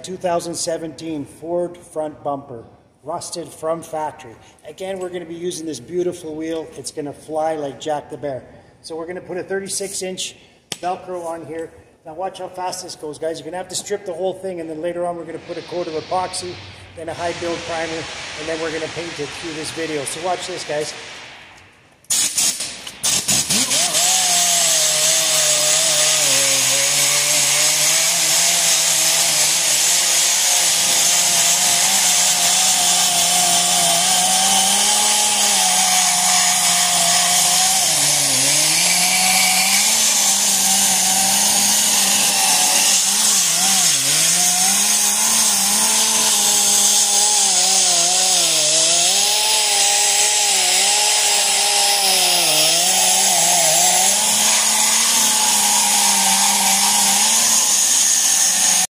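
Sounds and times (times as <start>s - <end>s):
rotary sander grinding metal: 22.1s - 58.9s.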